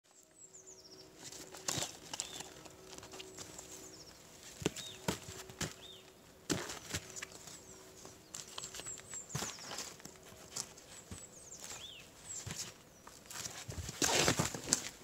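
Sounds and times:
small birds chirping: 0.1 - 14.9
dog paws crunching in snow: 1.2 - 15.0.

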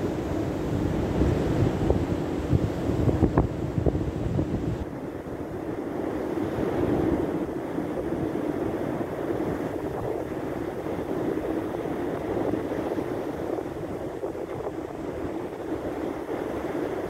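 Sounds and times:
surf breaking on shore: 0.0 - 17.0
wind rumbling on microphone: 0.0 - 17.0.

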